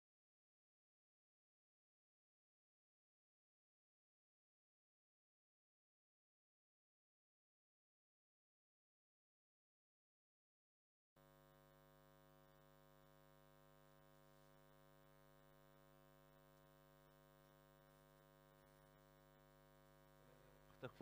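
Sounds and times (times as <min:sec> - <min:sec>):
faint mains hum: 0:11.2 - 0:21.0.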